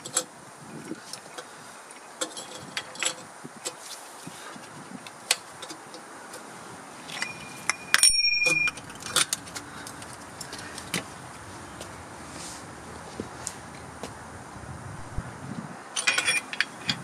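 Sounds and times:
light metallic clinks of tools: 0:07.1 - 0:11.0, 0:16.0 - 0:17.0
ringing metal-on-metal strike: 0:07.2 - 0:08.8.

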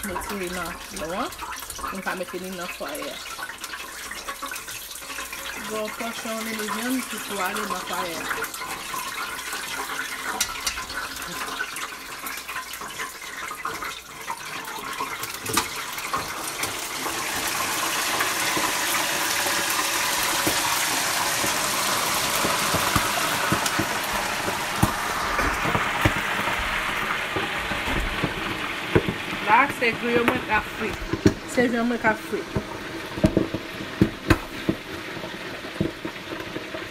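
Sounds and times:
hot oil sizzling: 0:00.0 - 0:36.9.

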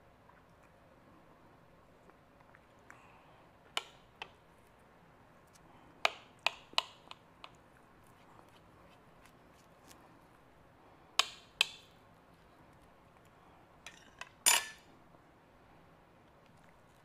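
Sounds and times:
knife clinking against plate: 0:13.9 - 0:14.8.

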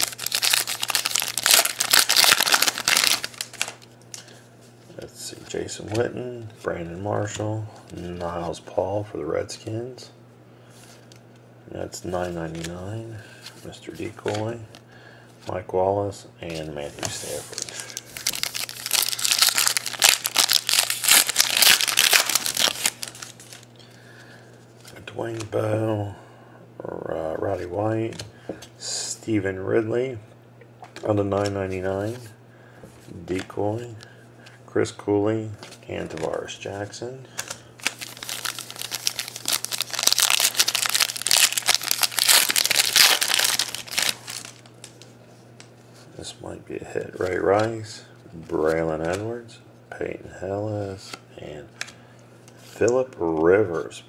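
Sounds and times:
foil wrapper crinkling: 0:00.0 - 0:03.9, 0:17.2 - 0:23.7, 0:37.4 - 0:45.1.

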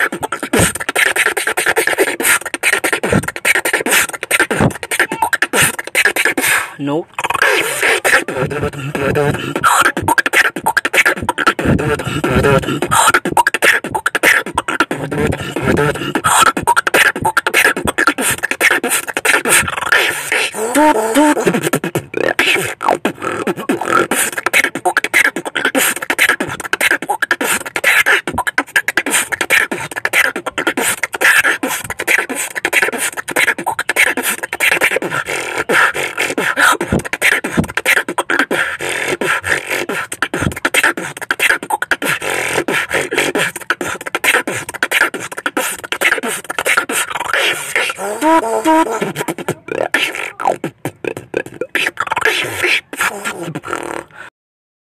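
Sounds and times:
person beatboxing: 0:00.0 - 0:54.3
wavering pitched vocal line: 0:00.0 - 0:54.3.

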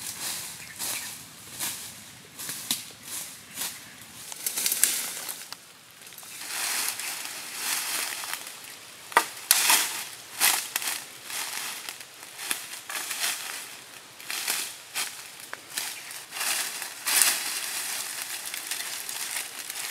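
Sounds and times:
leaves and undergrowth rustling: 0:00.0 - 0:19.9
dry sticks cracking and snapping: 0:04.3 - 0:19.9.

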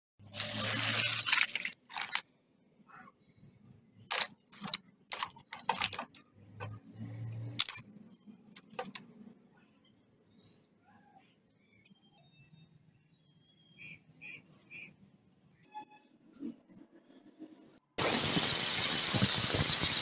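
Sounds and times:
metal pieces clinking and rattling: 0:00.6 - 0:02.2, 0:04.1 - 0:06.2, 0:07.6 - 0:07.9, 0:08.5 - 0:09.0.

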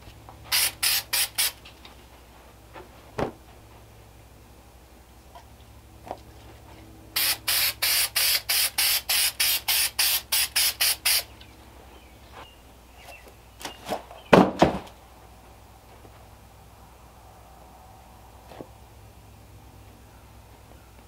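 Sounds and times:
spray paint can hissing: 0:00.5 - 0:01.6, 0:07.2 - 0:11.3
handling knocks and rustles: 0:01.6 - 0:03.9, 0:12.2 - 0:15.0.

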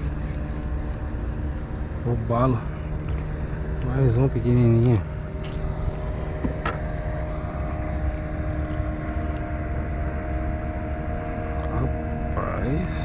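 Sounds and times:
steady low drone: 0:00.0 - 0:13.0.

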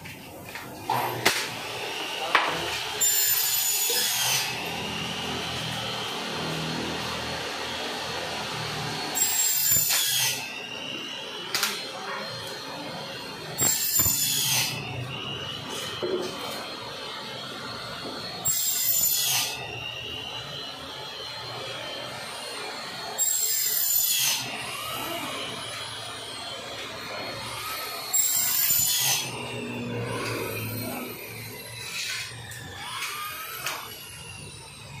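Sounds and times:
glass cutter scoring glass: 0:02.2 - 0:04.8, 0:09.0 - 0:10.8, 0:13.6 - 0:16.6, 0:18.4 - 0:19.6, 0:27.4 - 0:34.0.

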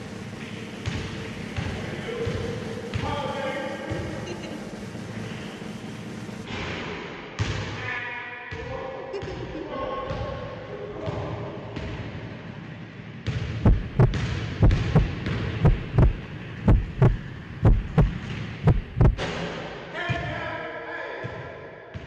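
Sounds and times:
heartbeat thumps: 0:13.6 - 0:19.2.

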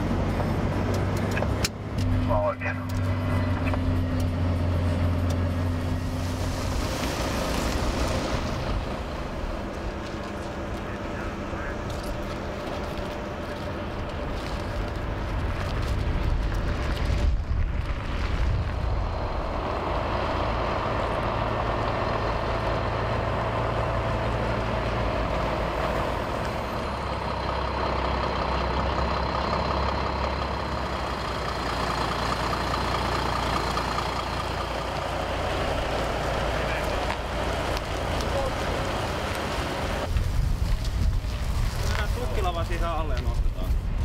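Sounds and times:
trailer rolling on road: 0:00.0 - 0:44.0
truck diesel engine: 0:00.0 - 0:44.0.

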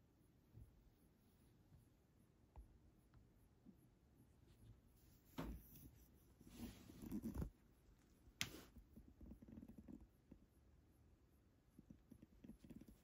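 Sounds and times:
rustling on fur: 0:04.4 - 0:08.8.

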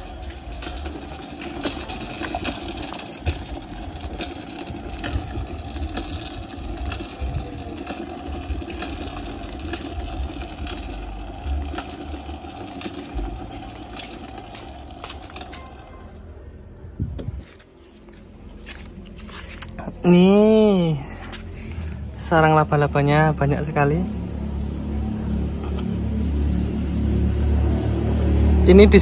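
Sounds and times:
frame clicking and rattling: 0:00.0 - 0:16.2
small wheels rolling on concrete: 0:00.0 - 0:29.0.

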